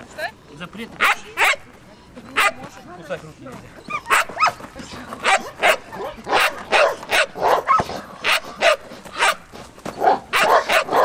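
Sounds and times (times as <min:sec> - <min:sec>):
dog barking: 0:01.0 - 0:01.6, 0:04.0 - 0:04.6, 0:05.2 - 0:09.4, 0:10.0 - 0:11.0.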